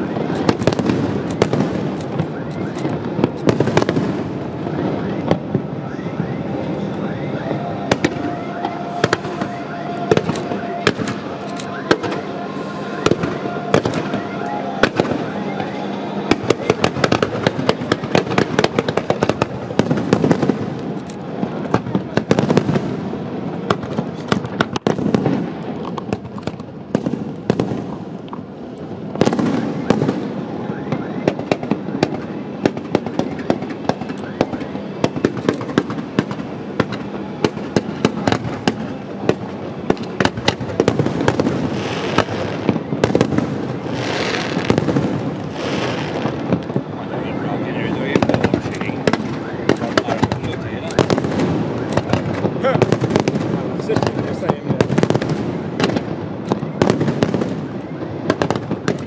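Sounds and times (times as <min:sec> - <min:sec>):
fireworks bangs and crackles: 0:00.0 - 0:59.0.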